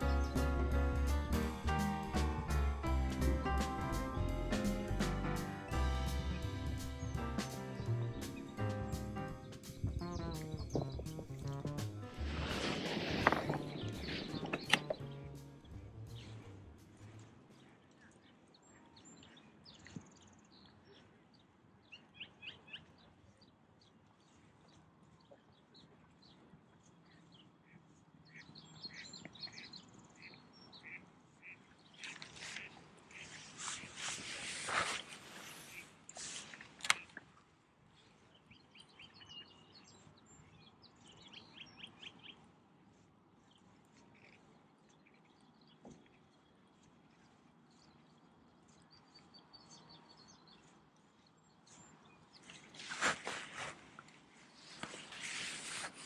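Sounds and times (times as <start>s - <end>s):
small birds chirping: 0.0s - 56.0s
faint bird chirps: 27.1s - 37.2s.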